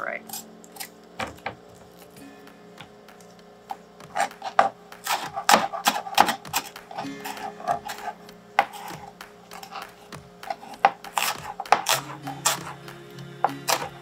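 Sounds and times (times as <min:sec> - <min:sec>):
knife chopping on cutting board: 0:03.1 - 0:14.0.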